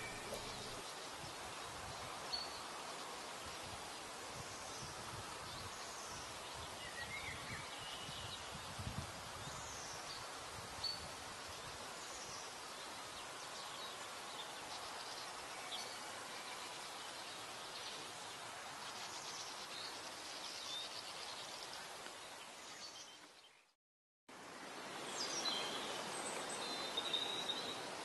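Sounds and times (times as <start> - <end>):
birds chirping: 0.0 - 1.4
steady background hiss: 0.0 - 23.6, 24.3 - 28.0.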